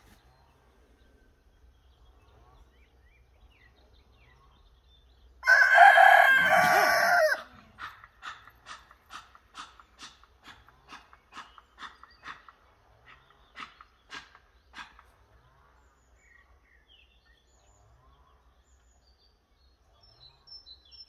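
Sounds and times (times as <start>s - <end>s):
rooster crowing: 5.4s - 7.6s.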